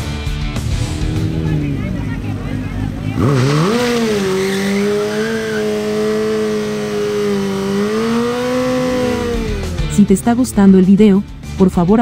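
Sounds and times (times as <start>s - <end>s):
rear tyre spinning: 0.6s - 10.0s
motorcycle engine at high revs: 0.6s - 10.1s.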